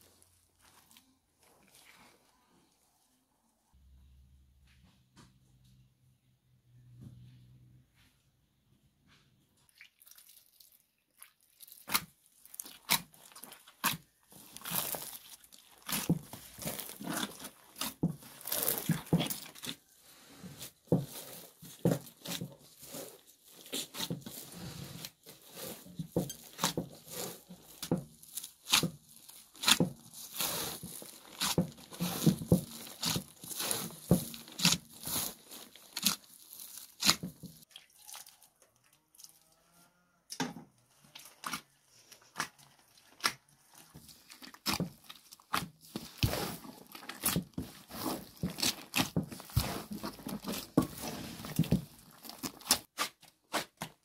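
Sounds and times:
dough slapping and squelching: 0:09.7 - 0:38.3, 0:41.1 - 0:54.0.

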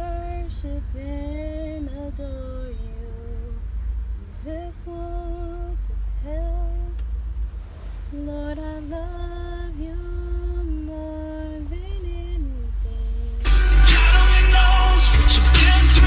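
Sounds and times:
woman singing: 0:00.0 - 0:03.6, 0:04.3 - 0:07.0, 0:08.2 - 0:13.4
low rumble of car: 0:00.0 - 0:16.0.

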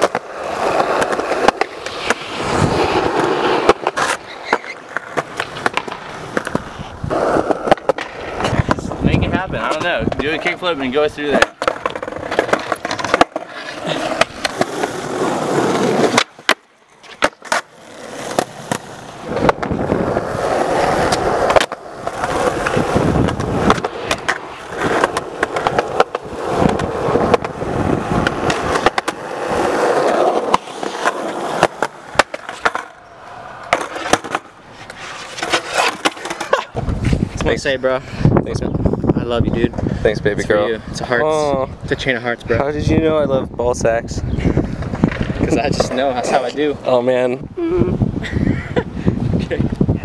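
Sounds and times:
skateboard clacking: 0:00.0 - 0:37.6
skateboard wheels rolling on concrete: 0:00.0 - 0:50.0.

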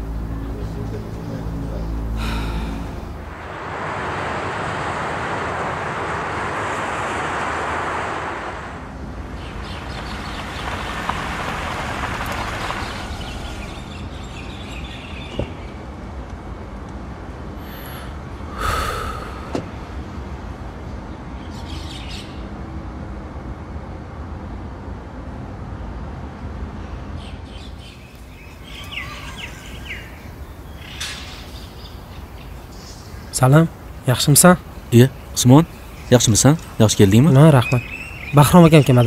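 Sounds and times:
low background rumble: 0:00.0 - 0:10.9
brief rush of noise: 0:02.2 - 0:09.0
bird chirps: 0:27.2 - 0:33.4, 0:34.8 - 0:39.0.

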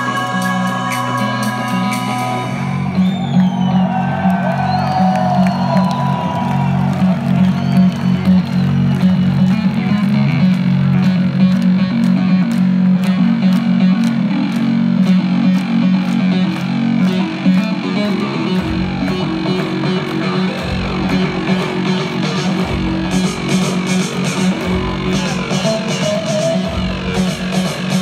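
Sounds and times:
deep bass: 0:00.0 - 0:28.0
heavy low synth riff: 0:05.5 - 0:28.0
steady beat of sharp hits: 0:14.0 - 0:28.0.

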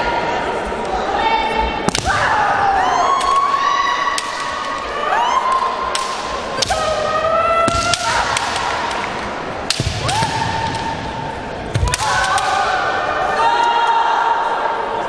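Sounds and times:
bamboo swords clacking: 0:04.1 - 0:04.9, 0:05.5 - 0:12.8
people shouting drawn-out shouts: 0:11.8 - 0:14.8.

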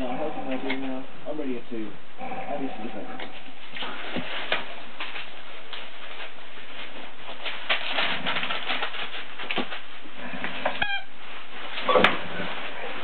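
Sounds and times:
puppies scrabbling in paper bedding: 0:03.8 - 0:13.0.

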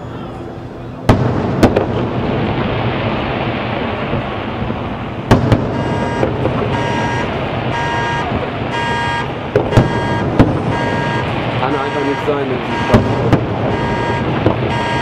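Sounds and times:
fireworks crackling and rumbling: 0:00.8 - 0:15.0
sharp fireworks bangs: 0:01.0 - 0:15.0
car alarm beeping: 0:05.6 - 0:15.0.

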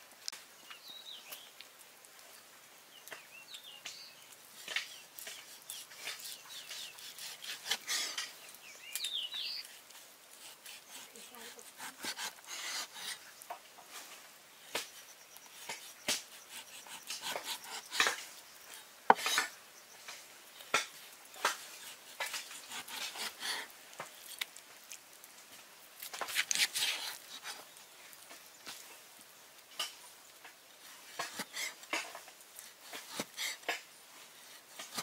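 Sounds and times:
cleaver slicing scrapes: 0:04.6 - 0:08.3, 0:09.5 - 0:13.4, 0:14.7 - 0:19.5, 0:21.4 - 0:24.5, 0:26.0 - 0:27.6, 0:31.1 - 0:33.8, 0:34.5 - 0:35.0.

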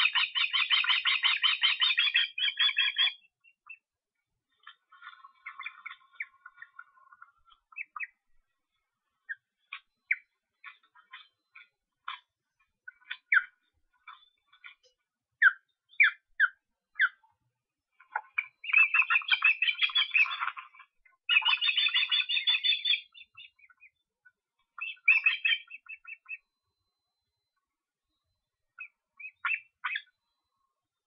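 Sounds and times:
ospreys chirping: 0:00.0 - 0:03.8, 0:04.6 - 0:08.2, 0:12.9 - 0:14.8, 0:18.0 - 0:24.0, 0:24.8 - 0:26.5, 0:28.8 - 0:30.2.

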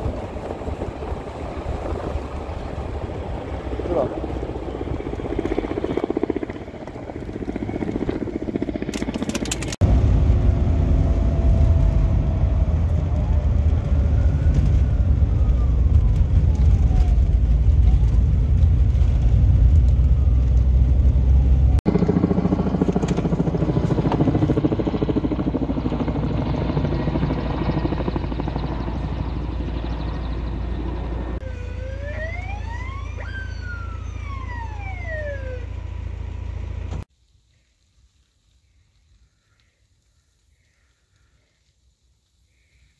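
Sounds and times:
helicopter rotor and engine: 0:00.0 - 0:15.5, 0:20.2 - 0:37.1
car rumbling on dirt road: 0:09.0 - 0:31.5
emergency vehicle siren wailing: 0:09.9 - 0:18.4, 0:19.0 - 0:22.3, 0:23.9 - 0:37.0.

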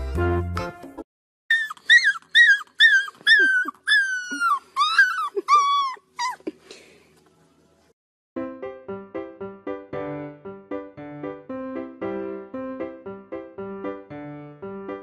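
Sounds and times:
puppy howling and yipping: 0:01.5 - 0:06.5.

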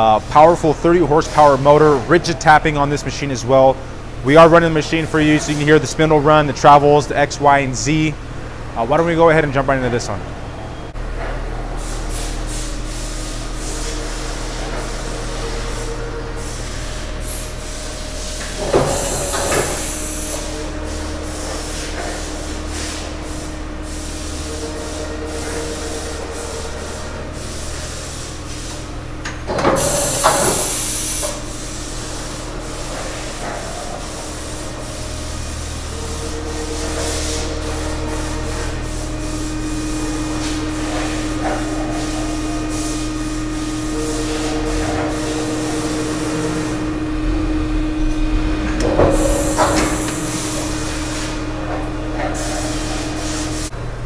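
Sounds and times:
machine hum with whine: 0:12.7 - 0:54.0
loud hiss: 0:18.8 - 0:20.4, 0:29.8 - 0:31.4, 0:49.2 - 0:50.8.

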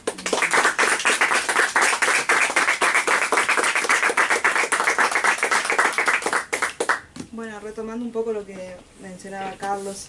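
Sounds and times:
people clapping: 0:00.0 - 0:07.1.

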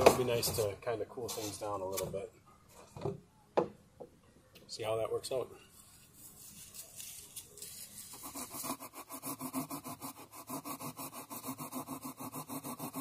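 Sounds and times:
blade sawing through styrofoam: 0:07.7 - 0:13.0.

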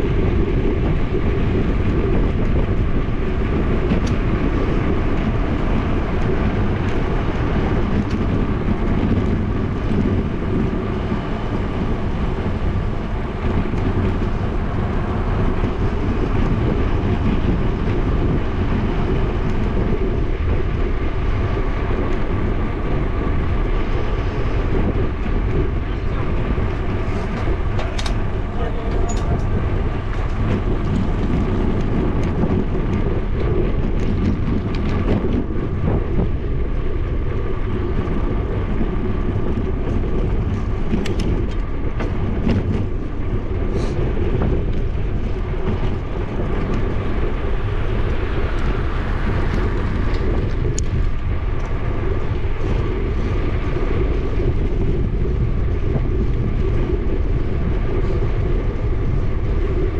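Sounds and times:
tyre noise on asphalt: 0:00.0 - 0:59.9
wind on microphone: 0:00.0 - 0:59.9
small clicks and rattles: 0:39.2 - 0:43.1.

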